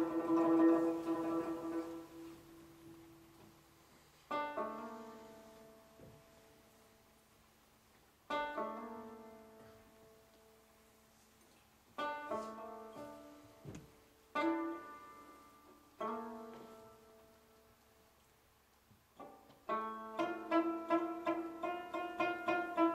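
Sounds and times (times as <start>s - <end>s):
lute strummed chords: 0.0s - 2.9s
soft knock: 13.0s - 13.9s.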